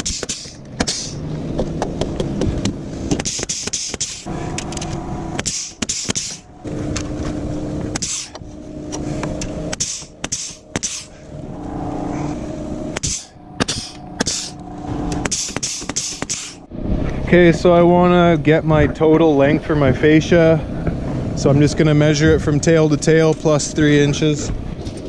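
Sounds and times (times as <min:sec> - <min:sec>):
nail gun firing into wood: 0:00.0 - 0:01.2, 0:03.1 - 0:04.2, 0:05.4 - 0:06.4, 0:09.7 - 0:11.0, 0:15.2 - 0:16.6
low hum: 0:00.0 - 0:25.0.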